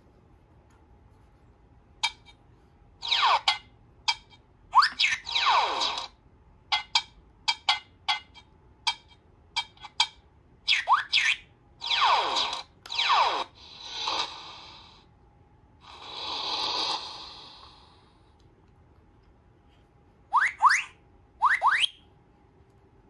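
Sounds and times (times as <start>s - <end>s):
electronic chirps sweeping in pitch: 3.0s - 3.6s, 10.7s - 13.5s, 20.3s - 22.0s.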